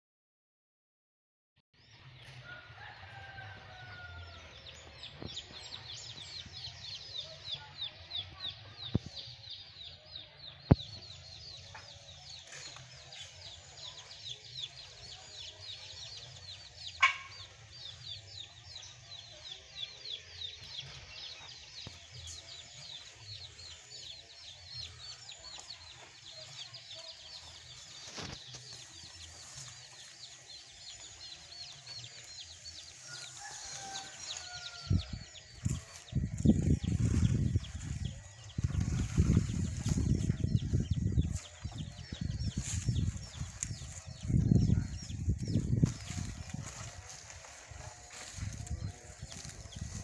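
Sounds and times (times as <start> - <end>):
chickens clucking: 16.6 - 17.7.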